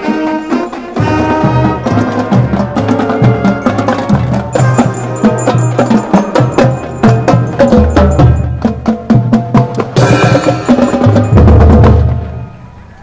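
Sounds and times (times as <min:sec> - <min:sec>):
brass and saxophones: 0:00.0 - 0:07.7
marching band playing: 0:00.0 - 0:12.9
drumline cadence: 0:00.0 - 0:13.0.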